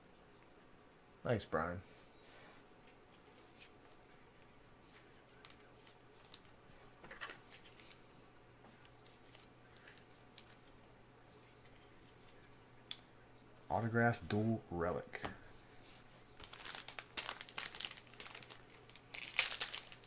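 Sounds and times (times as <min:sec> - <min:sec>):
low steady hum: 0:00.0 - 0:20.0
plastic rustling: 0:16.4 - 0:20.0.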